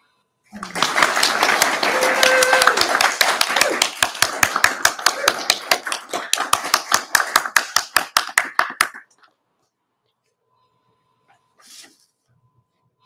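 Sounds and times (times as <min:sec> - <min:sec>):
small group clapping: 0:00.6 - 0:09.2.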